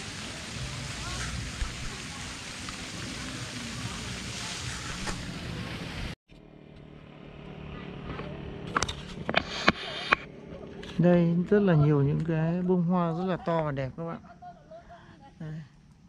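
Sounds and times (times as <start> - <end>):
rushing hiss: 0.0 - 6.2.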